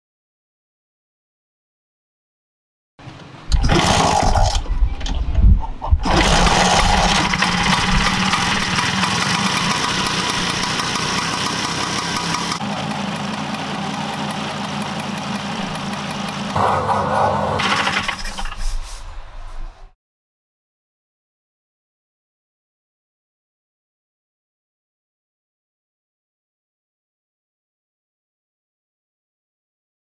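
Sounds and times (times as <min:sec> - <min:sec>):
scooter engine kick-started: 0:03.5 - 0:05.2, 0:06.0 - 0:18.7
scooter engine running steadily: 0:06.1 - 0:16.8.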